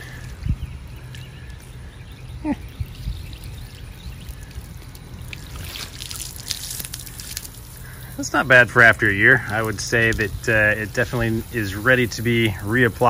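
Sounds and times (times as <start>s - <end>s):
water splashing on fabric: 3.7s - 8.5s.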